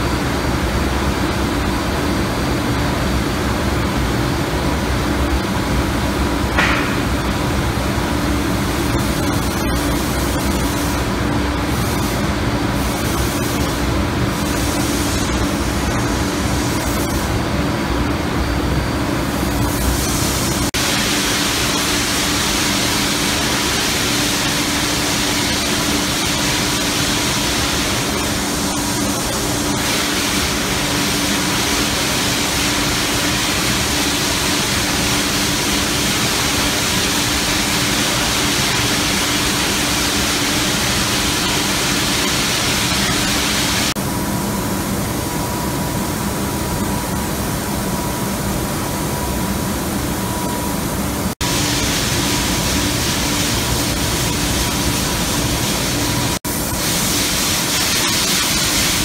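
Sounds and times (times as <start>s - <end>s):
machine rushing noise: 6.5s - 34.0s.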